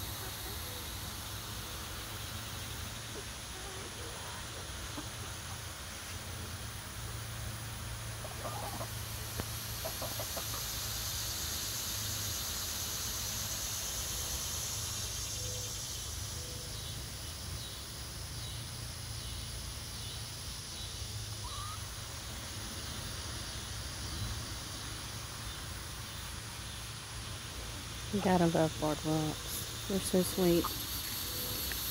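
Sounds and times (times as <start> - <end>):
steady high hiss: 0.0 - 31.9
chicks calling softly: 9.8 - 10.8, 21.4 - 22.0.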